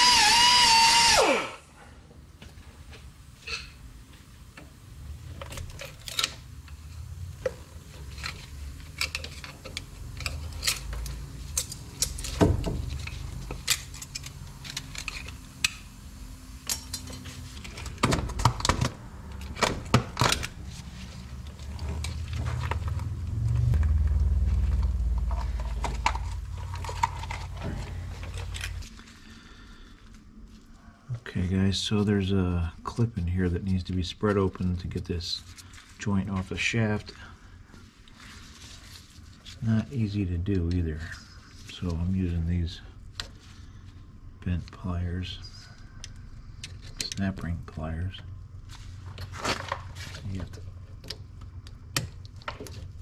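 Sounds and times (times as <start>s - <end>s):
low rumble of rubber handled: 6.6s - 16.2s, 17.1s - 29.0s
metal tool clinks and scrapes: 16.6s - 17.8s.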